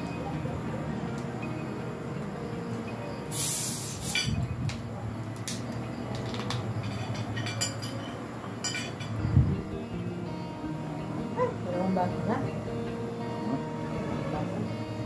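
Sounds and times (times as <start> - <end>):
brief hiss: 3.3 - 4.4
cutlery clinking against plates: 4.0 - 4.5, 6.3 - 9.2.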